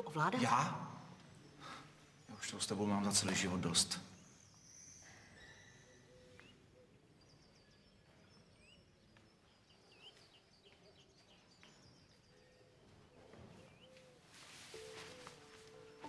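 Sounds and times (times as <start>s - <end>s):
faint high chirps: 0.0s - 12.7s.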